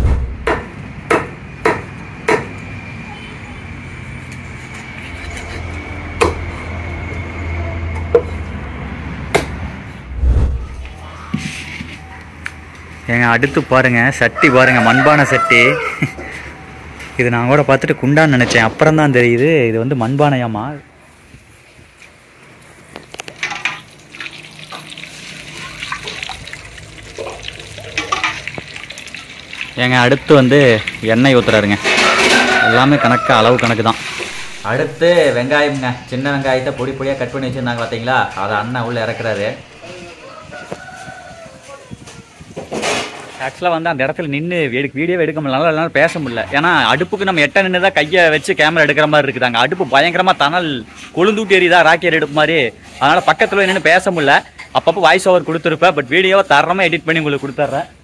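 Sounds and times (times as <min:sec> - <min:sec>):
sharp knocks: 0:00.0 - 0:02.5
kitchen utensils clattering: 0:23.4 - 0:26.2, 0:27.2 - 0:28.6, 0:31.2 - 0:33.2
water running and splashing: 0:23.4 - 0:32.0.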